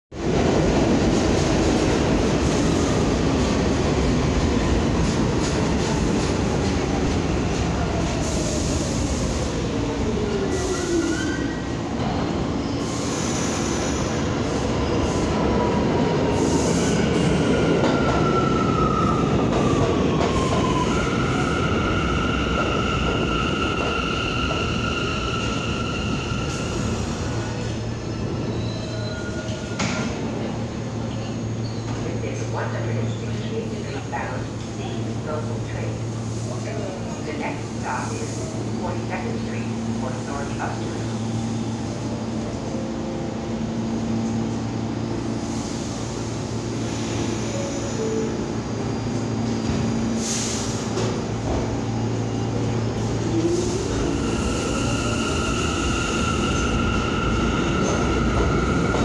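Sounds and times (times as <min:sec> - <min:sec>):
subway train rumble: 0:00.1 - 0:59.0
wheels and brakes squealing: 0:28.4 - 0:30.0.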